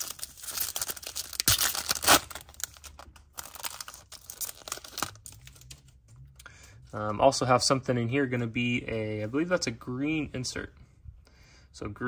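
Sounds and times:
foil wrapper tearing and crinkling: 0.0 - 5.8.

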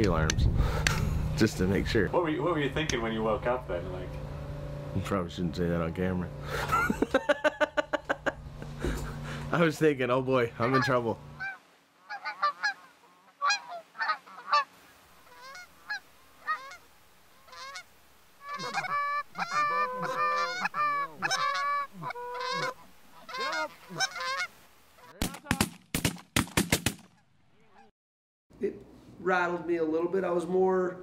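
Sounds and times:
geese honking in flight: 10.5 - 25.2
shotgun shots: 25.2 - 27.2.

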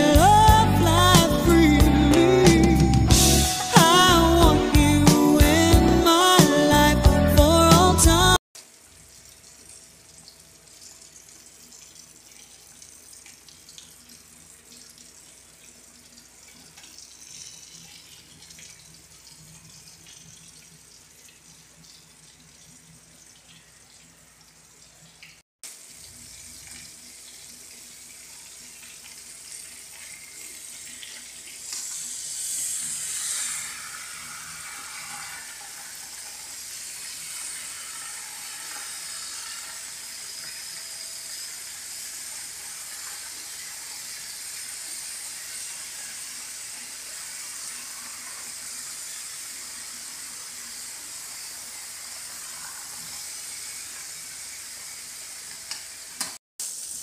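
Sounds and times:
fish frying in hot oil: 13.6 - 21.8, 25.2 - 57.0.

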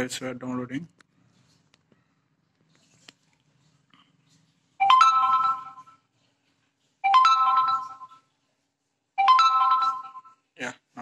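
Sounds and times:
phone notification chime: 4.8 - 6.0, 7.0 - 8.2, 9.2 - 10.4.

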